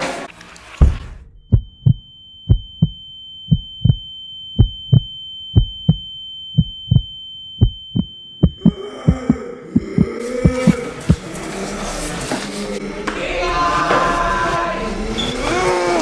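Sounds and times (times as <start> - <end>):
heartbeat thumps: 0.8 - 11.3
high-pitched ringing tone: 1.2 - 9.3.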